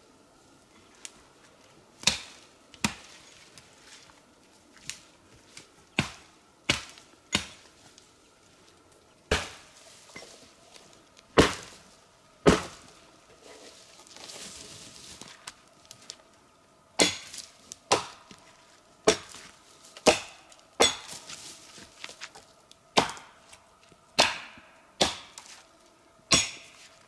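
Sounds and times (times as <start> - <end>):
axe chopping wood: 2.0 - 3.1, 6.0 - 7.6, 9.3 - 9.7, 11.4 - 11.8, 12.4 - 12.8, 17.0 - 18.3, 19.0 - 19.4, 20.0 - 21.2, 23.0 - 23.4, 24.2 - 25.5, 26.3 - 26.8.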